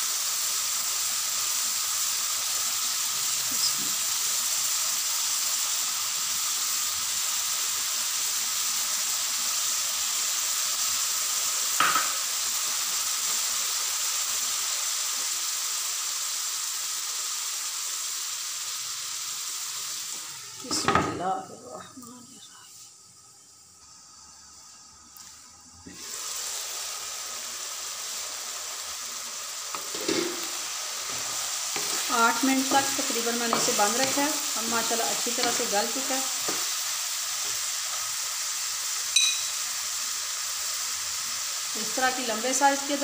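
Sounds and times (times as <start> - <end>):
food sizzling in frying pan: 0.0 - 43.0
glass lid knocking onto pan: 11.8 - 12.2.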